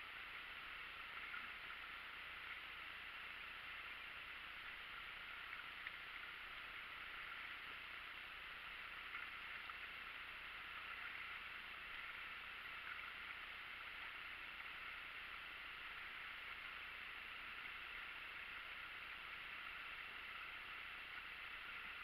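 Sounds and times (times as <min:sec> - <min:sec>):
faint steady hiss: 0:00.0 - 0:22.0
soft ticks: 0:00.9 - 0:02.6, 0:05.4 - 0:07.8.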